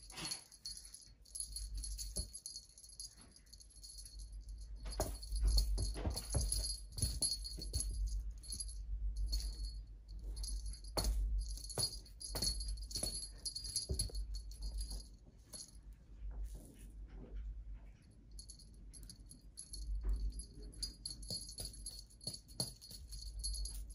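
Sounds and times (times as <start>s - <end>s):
small jingle bell jingling: 0.0s - 15.8s, 18.3s - 23.9s.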